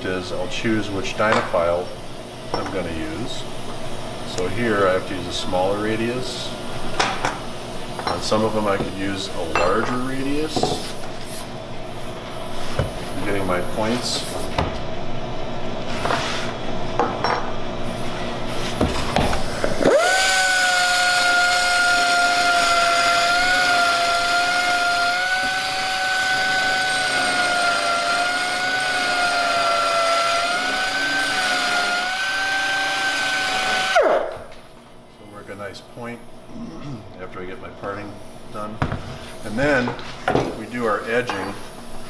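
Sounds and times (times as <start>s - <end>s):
belt file whine grinding metal: 19.7s - 34.3s.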